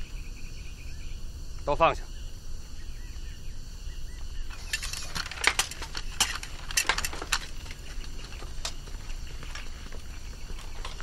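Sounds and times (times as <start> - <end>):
swords clinking and rattling: 4.5 - 7.8.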